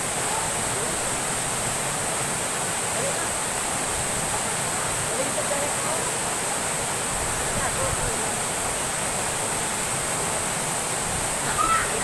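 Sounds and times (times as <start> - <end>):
waterfall rushing into pool: 0.0 - 12.0
faint children's voices: 11.4 - 12.0.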